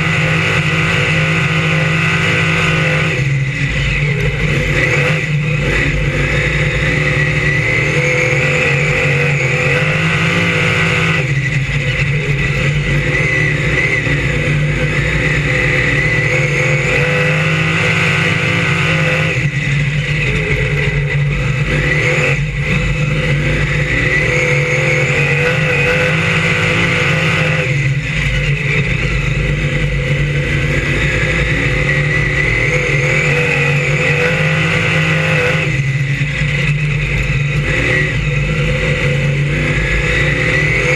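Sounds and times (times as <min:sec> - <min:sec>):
race car engine accelerating: 0:00.0 - 0:40.9.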